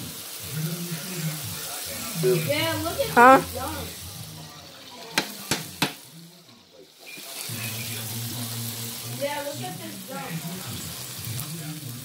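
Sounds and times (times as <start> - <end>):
patties sizzling in grease: 0.0 - 12.0
metal spatula tapping pan: 5.2 - 6.0.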